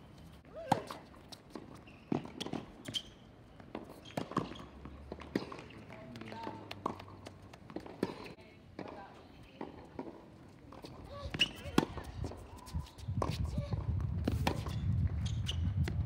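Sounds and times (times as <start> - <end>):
ball bouncing on hard court: 0.7 - 10.2, 10.8 - 12.4
tennis ball struck by rackets: 3.7 - 12.4, 13.2 - 14.8.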